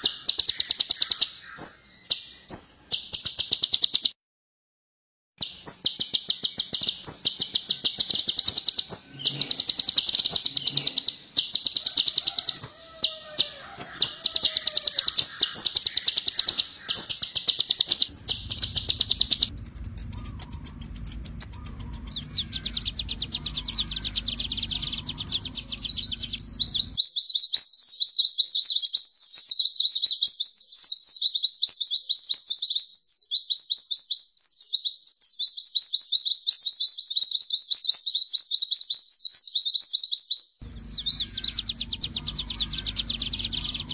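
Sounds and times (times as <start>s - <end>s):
bird singing high trills: 0.0s - 4.1s, 5.4s - 27.1s, 40.6s - 43.9s
low hum: 6.7s - 27.0s, 40.6s - 43.9s.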